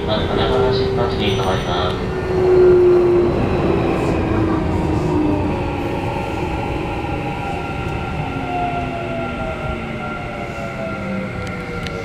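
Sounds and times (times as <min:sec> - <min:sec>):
wheels rumbling on rails: 0:00.0 - 0:12.0.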